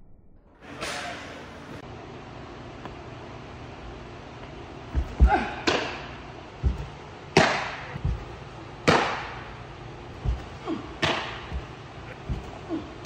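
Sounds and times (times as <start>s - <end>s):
baseball smacking into leather mitt: 6.7s - 8.2s, 8.8s - 9.4s.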